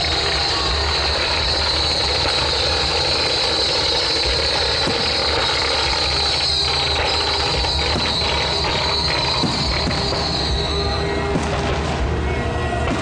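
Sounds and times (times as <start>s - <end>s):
fireworks bursting and crackling: 0.0s - 13.0s.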